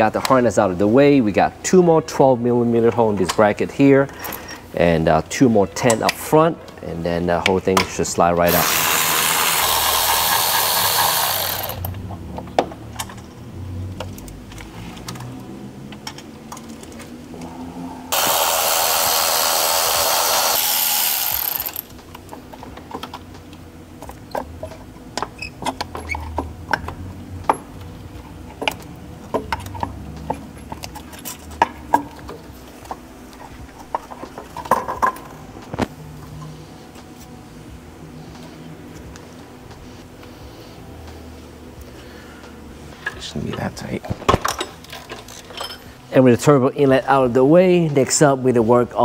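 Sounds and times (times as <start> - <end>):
cordless ratchet running: 8.5 - 12.0, 18.1 - 22.0
metal parts and tools clinking: 44.3 - 46.0.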